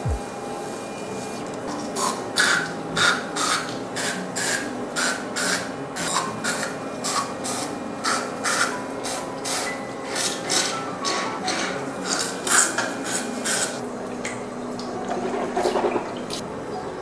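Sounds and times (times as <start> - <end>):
electric toothbrush scrubbing teeth: 1.7 - 13.8.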